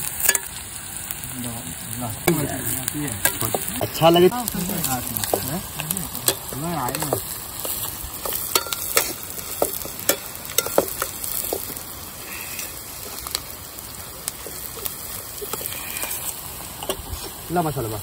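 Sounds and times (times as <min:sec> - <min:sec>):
food sizzling in a pan: 0:00.0 - 0:18.0
spatula clacking against pan: 0:06.3 - 0:11.7.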